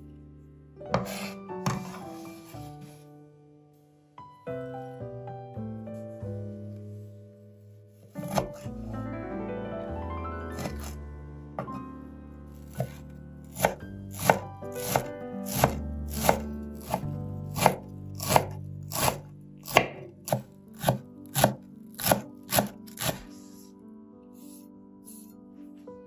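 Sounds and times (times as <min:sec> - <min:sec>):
knife chopping on wooden board: 0:01.0 - 0:02.0, 0:08.2 - 0:08.7, 0:10.6 - 0:11.0, 0:12.6 - 0:23.3.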